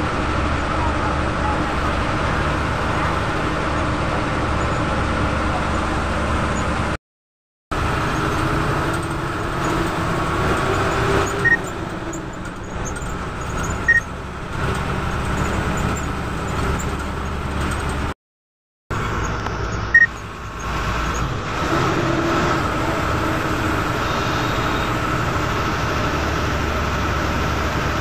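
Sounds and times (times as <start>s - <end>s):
bus engine and road noise: 0.0s - 7.0s, 7.7s - 18.2s, 18.9s - 28.0s.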